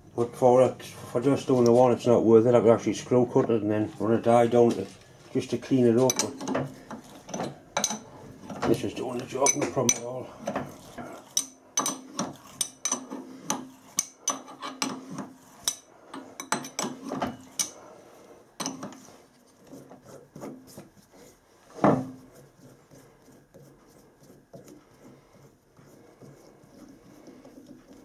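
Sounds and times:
tool handling noise: 0:06.0 - 0:17.8.

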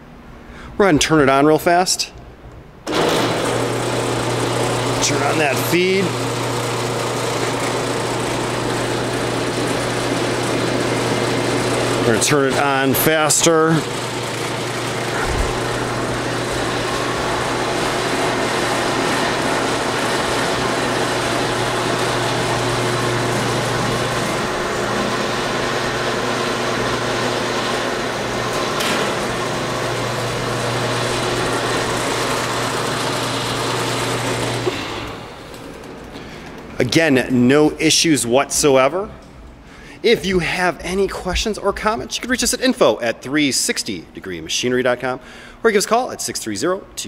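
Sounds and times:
drum sander motor humming: 0:02.9 - 0:37.6.

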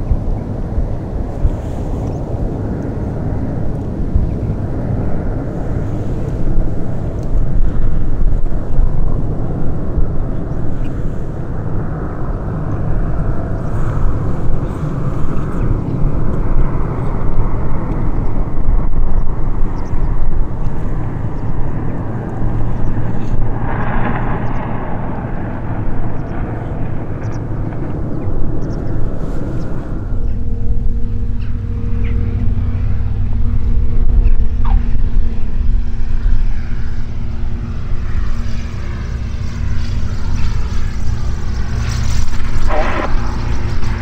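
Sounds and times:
propeller aircraft engine droning: 0:00.0 - 0:44.0.

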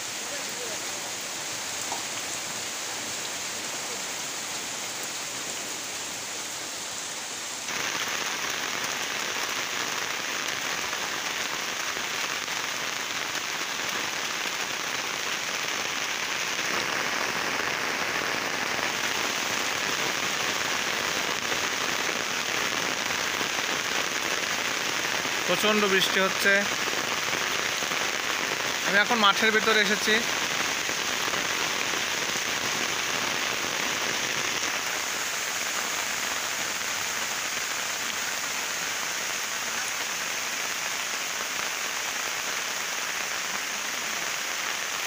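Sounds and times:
heavy rain falling: 0:00.0 - 0:45.0.

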